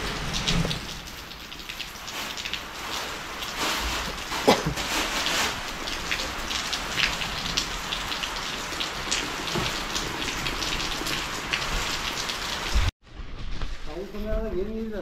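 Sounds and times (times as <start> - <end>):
raindrops ticking: 0.0 - 4.7, 5.6 - 12.7
rain falling: 0.0 - 12.9.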